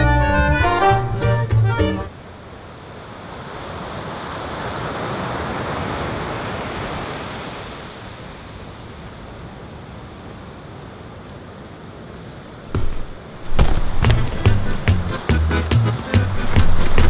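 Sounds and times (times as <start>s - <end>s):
ocean surf washing onto beach: 2.1s - 17.0s.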